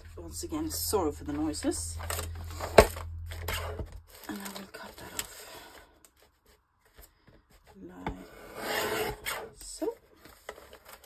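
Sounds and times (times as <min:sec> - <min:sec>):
paper rasping and rubbing: 0:08.0 - 0:11.0.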